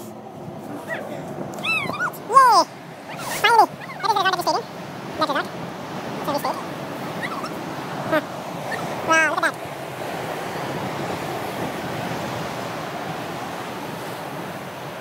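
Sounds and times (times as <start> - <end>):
coastal wind: 0.0 - 15.0
sea surf: 0.0 - 15.0
short high-pitched vocal call: 7.2 - 9.6.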